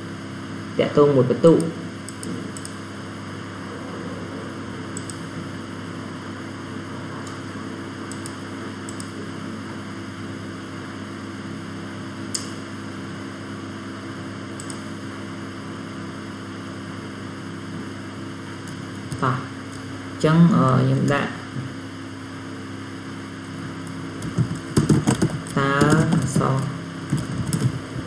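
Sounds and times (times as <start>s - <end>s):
electrical hum and hiss: 0.0s - 28.0s
mouse clicks: 2.1s - 2.8s, 5.0s - 5.2s, 8.1s - 9.1s, 14.6s - 14.8s.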